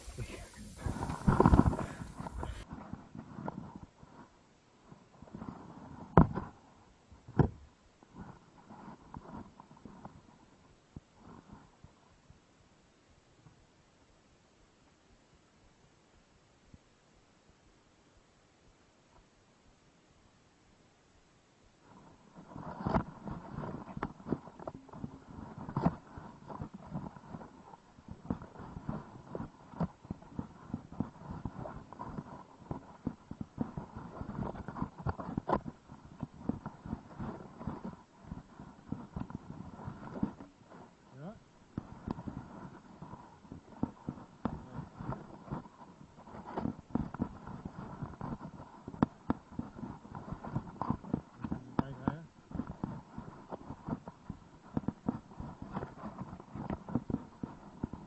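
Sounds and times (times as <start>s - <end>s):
soft bumps: 0.0s - 2.6s
faint background haze: 0.0s - 2.7s
rustling: 0.0s - 4.3s, 21.8s - 58.0s.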